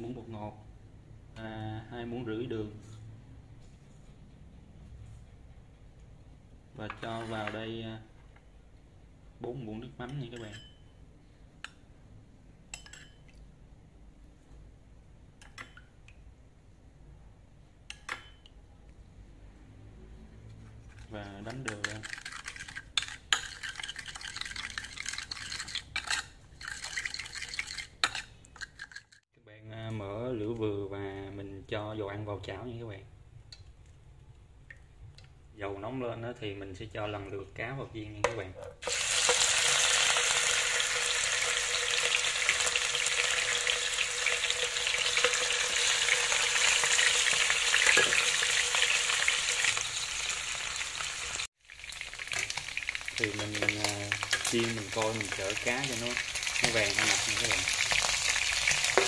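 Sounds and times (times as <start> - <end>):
spoon clinks: 10.4 - 10.9, 12.7 - 13.3
spoon scraping bowl: 20.5 - 29.2
fish sizzling in frying pan: 38.8 - 59.0.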